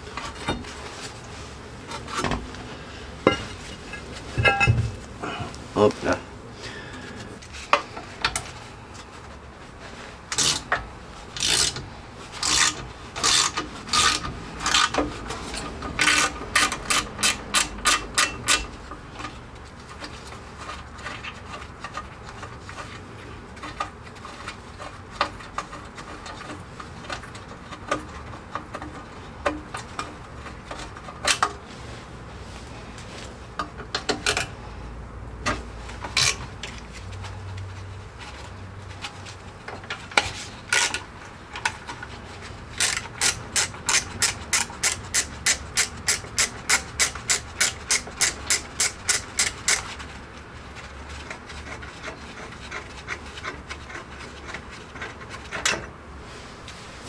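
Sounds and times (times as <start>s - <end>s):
hand tool rasping strokes: 12.4s - 18.7s, 42.8s - 49.9s.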